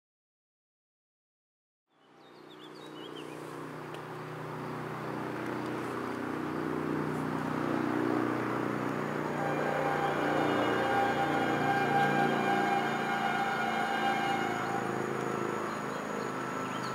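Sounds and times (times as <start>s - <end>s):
birds chirping: 2.0s - 16.9s
diesel locomotive engine drone: 2.5s - 16.9s.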